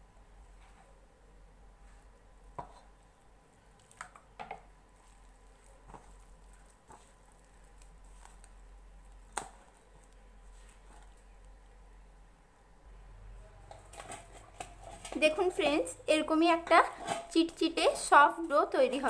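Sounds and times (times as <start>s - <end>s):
dough squishing: 1.7s - 12.2s.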